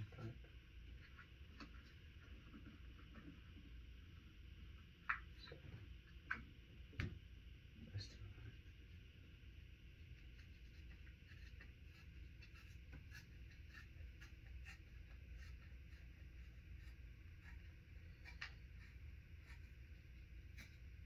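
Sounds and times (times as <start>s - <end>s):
low room hum: 0.0s - 21.0s
small clicks and scratchy ticks: 0.2s - 3.8s, 10.0s - 21.0s.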